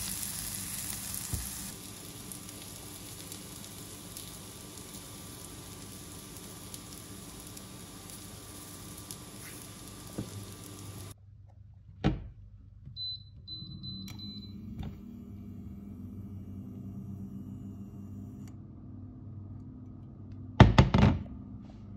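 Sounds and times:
vegetables sizzling in a frying pan: 0.0 - 11.2.

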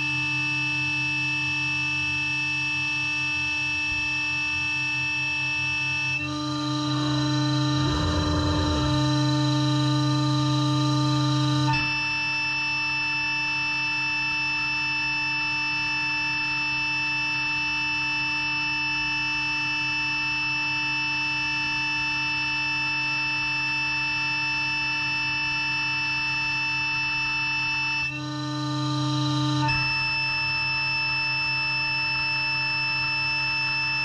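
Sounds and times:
router spindle whining: 6.5 - 9.9.

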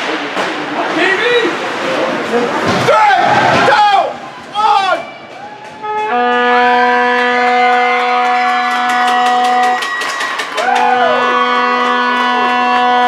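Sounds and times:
crowd cheering: 2.8 - 13.0
goal horn blast: 5.8 - 9.9, 10.8 - 13.0
people clapping: 6.3 - 13.0.

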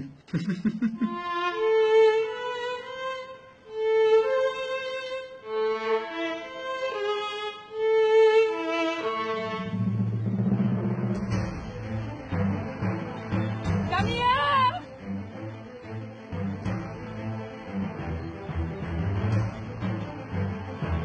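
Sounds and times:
solo violin slow melody: 1.0 - 9.9.

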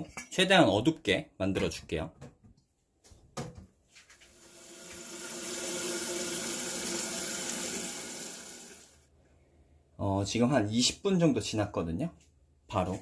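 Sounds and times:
water running from a tap: 4.3 - 9.0.

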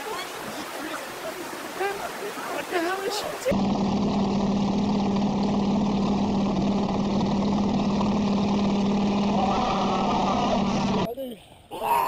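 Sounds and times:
water rushing: 0.0 - 11.1
wind: 0.0 - 12.0
boat engine droning: 3.4 - 11.1.

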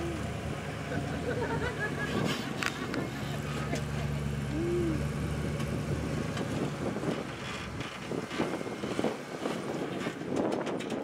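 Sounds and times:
engine running at low revs: 0.0 - 11.0
wind buffeting microphone: 5.4 - 11.0.

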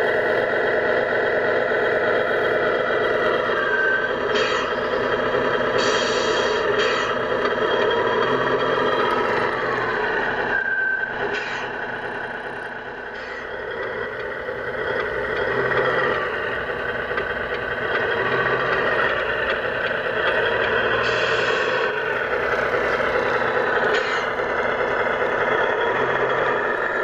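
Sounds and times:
running gear scraping and squealing: 3.3 - 5.0, 23.8 - 24.4.

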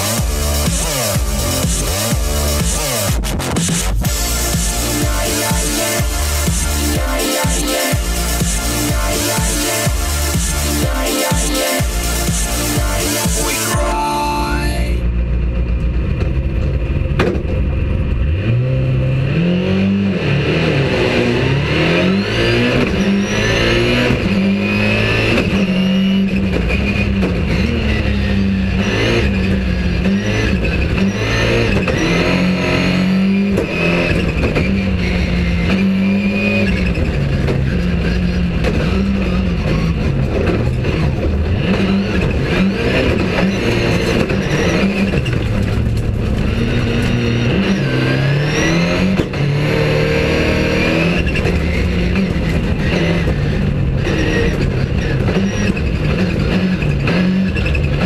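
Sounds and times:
turbocharged car engine revving: 0.0 - 58.0.

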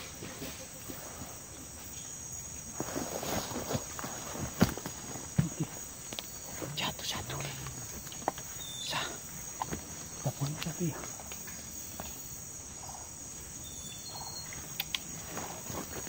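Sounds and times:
insect chorus drone: 0.0 - 16.0.

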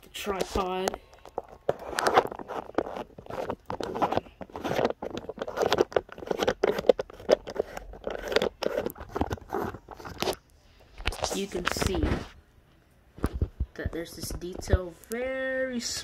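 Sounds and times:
camera handling clicks and scrapes: 0.3 - 10.4.

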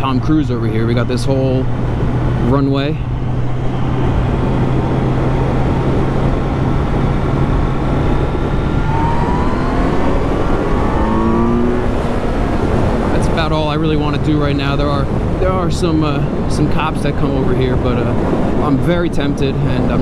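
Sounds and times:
wind rush: 0.0 - 20.0
motorcycle engine accelerating: 3.1 - 13.2.

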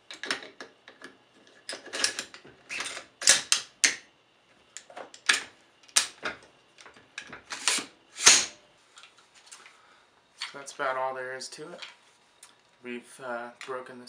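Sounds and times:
metal sliding scrapes: 7.5 - 8.6.

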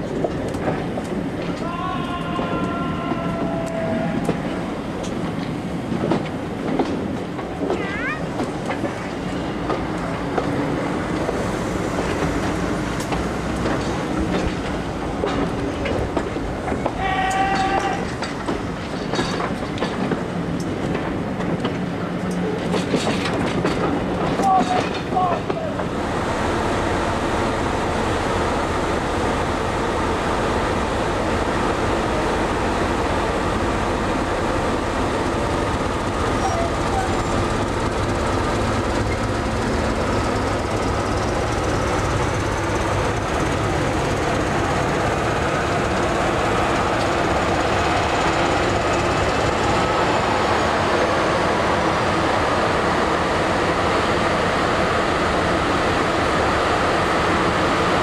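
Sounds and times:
diesel locomotive engines droning: 0.0 - 58.0.

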